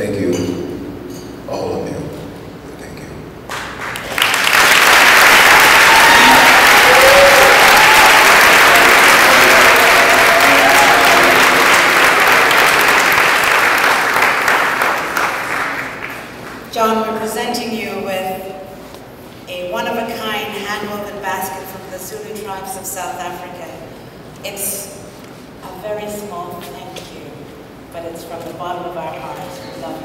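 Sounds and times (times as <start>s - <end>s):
audience applauding: 3.5s - 16.7s.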